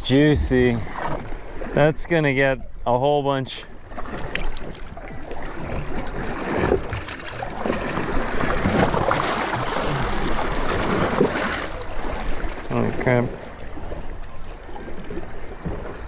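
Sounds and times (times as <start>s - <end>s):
water splashing against boat: 0.0s - 16.0s.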